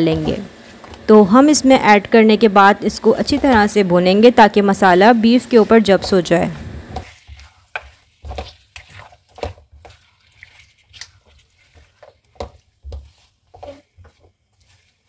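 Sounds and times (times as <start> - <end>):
meat frying: 0.0 - 15.0
spatula scraping metal pan: 5.2 - 15.0.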